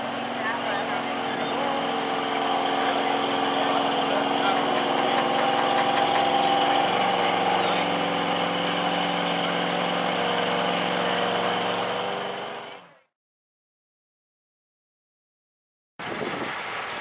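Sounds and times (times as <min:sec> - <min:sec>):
pickup engine running under load: 0:00.0 - 0:13.0.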